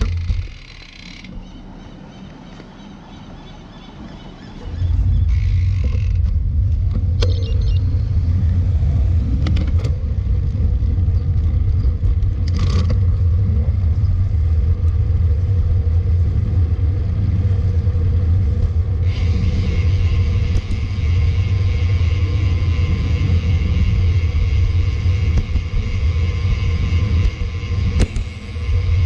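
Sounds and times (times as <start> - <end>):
bicycle clicks and rattles: 0.0 - 1.4, 5.2 - 7.5, 9.4 - 13.4
wind and road noise: 0.0 - 29.0.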